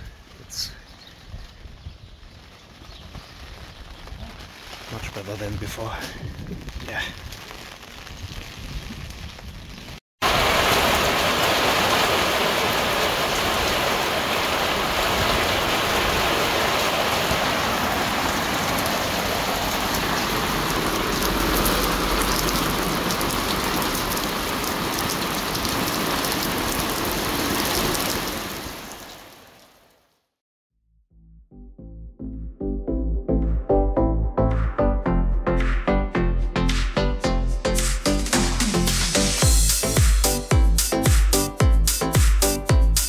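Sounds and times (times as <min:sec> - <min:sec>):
heavy rain pouring: 0:00.0 - 0:30.1.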